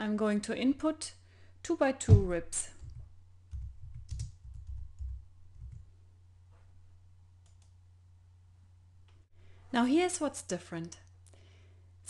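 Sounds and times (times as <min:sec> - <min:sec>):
faint steady low hum: 0:00.0 - 0:12.0
keyboard keystrokes: 0:02.8 - 0:05.8.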